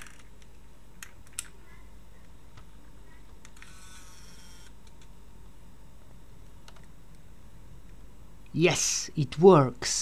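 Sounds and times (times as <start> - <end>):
zoom lens motor whirring: 3.6 - 4.8.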